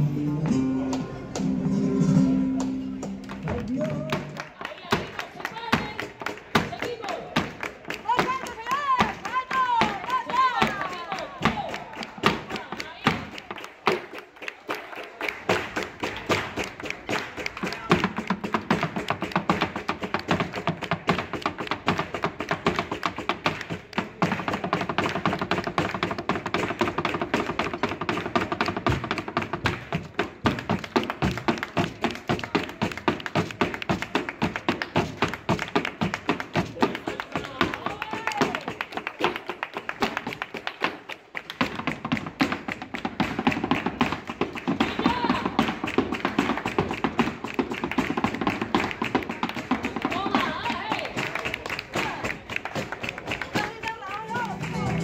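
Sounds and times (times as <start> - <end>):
guitar: 0.0 - 4.4, 54.3 - 55.0
hand-clapping: 2.6 - 55.0
heeled shoes stamping on wood box: 3.0 - 14.0, 17.9 - 51.3.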